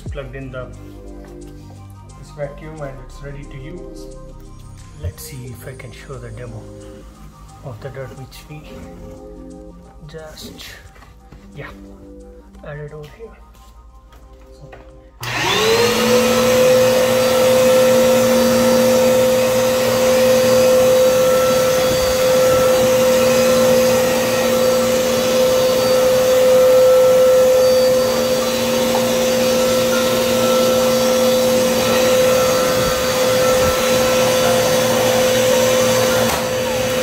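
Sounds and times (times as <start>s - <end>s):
vacuum cleaner motor whine: 15.2s - 37.0s.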